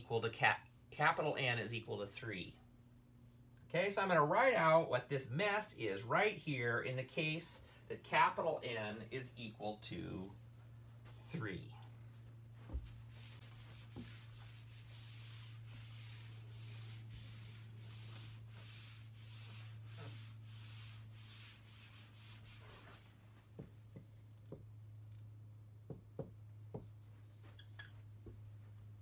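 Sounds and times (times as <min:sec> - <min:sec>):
eraser wiping whiteboard: 0:12.7 - 0:23.2
marker writing on whiteboard: 0:12.8 - 0:22.5.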